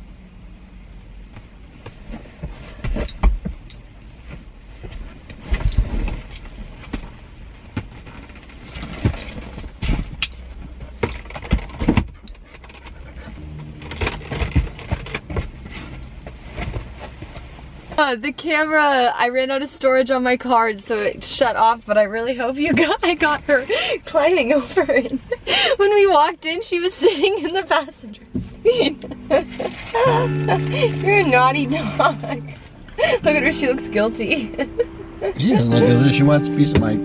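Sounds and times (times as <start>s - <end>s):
low steady rumble: 0.0s - 37.0s
dog paws thumping on car seats: 1.3s - 13.4s.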